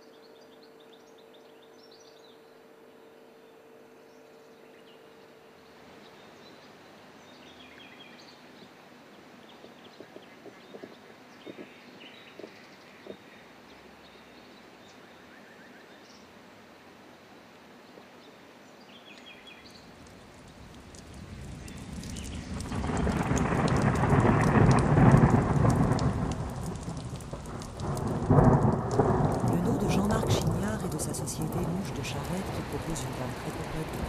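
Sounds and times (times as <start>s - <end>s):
rain pattering on water: 7.5s - 14.8s, 17.9s - 34.0s
thunderclap: 21.0s - 34.0s
thunder rolling: 21.1s - 34.0s.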